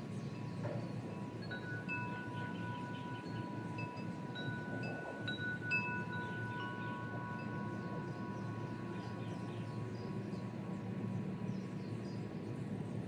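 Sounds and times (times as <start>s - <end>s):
wind chime ringing: 1.2s - 9.8s.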